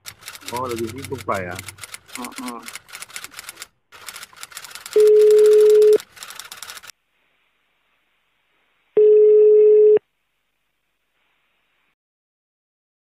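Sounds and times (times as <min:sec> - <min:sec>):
telephone ringback tone: 0:05.0 - 0:06.0, 0:09.0 - 0:10.0.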